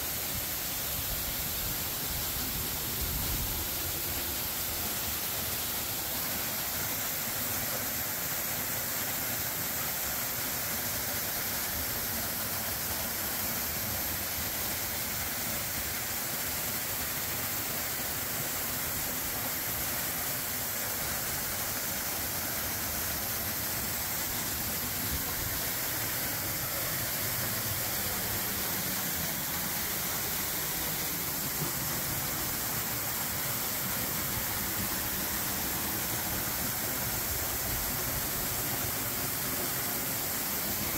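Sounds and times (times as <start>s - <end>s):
waterfall rushing: 1.4s - 40.9s.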